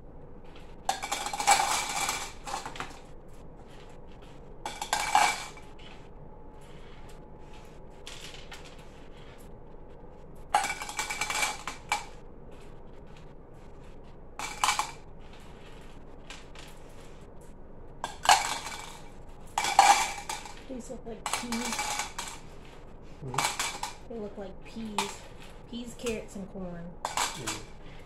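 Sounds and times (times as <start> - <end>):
candies clattering into cups: 0.9 - 3.0, 4.7 - 5.7, 10.6 - 12.2, 14.4 - 17.0, 18.0 - 26.4, 27.0 - 27.7.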